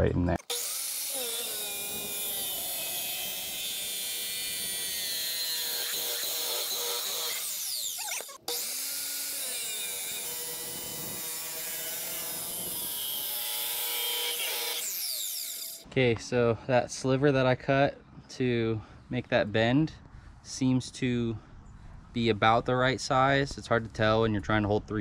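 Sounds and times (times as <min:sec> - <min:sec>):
chop saw cutting metal pipe: 0:00.4 - 0:15.9.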